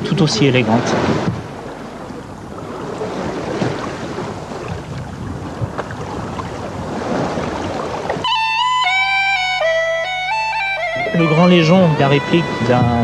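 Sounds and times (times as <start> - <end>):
wind buffeting microphone: 0.0 - 8.3, 11.0 - 13.0
water rushing along hull: 0.0 - 13.0.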